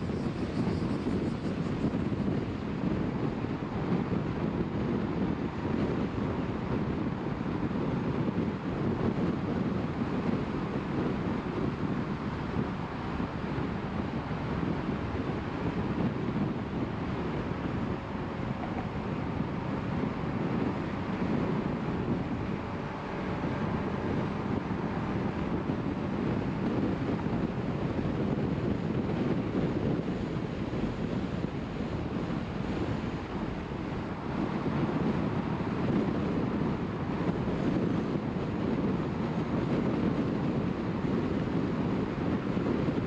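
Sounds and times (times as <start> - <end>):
wind noise: 0.0 - 43.0.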